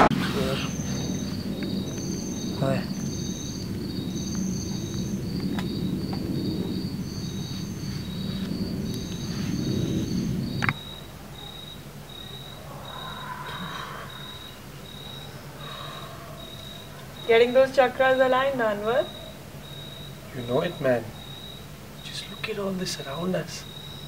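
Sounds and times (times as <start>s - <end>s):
crickets chirping: 0.0s - 24.0s
low rumbling background noise: 0.0s - 24.0s.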